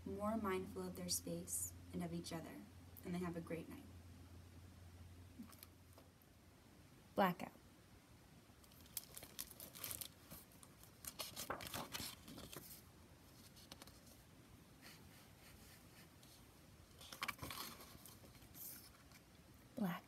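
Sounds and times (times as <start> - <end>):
plastic book jacket crinkling: 8.6 - 14.2, 17.0 - 19.3
book pages turning: 8.7 - 14.2, 14.9 - 19.3.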